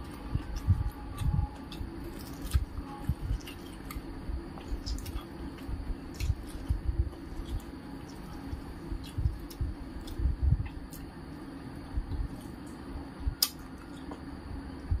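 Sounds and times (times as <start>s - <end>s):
chewing: 4.6s - 11.0s.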